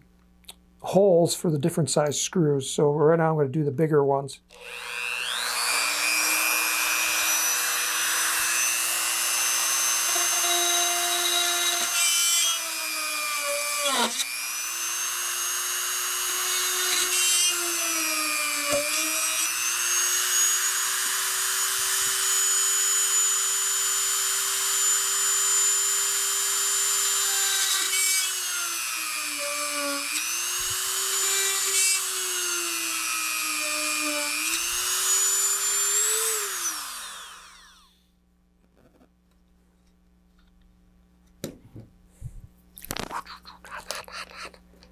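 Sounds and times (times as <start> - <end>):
rotary tool drilling fiberglass: 4.5 - 38.0.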